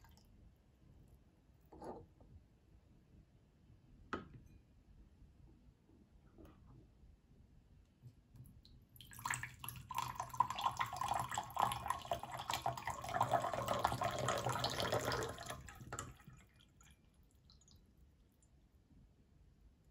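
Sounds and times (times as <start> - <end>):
water pouring from teapot spout: 9.0 - 17.8.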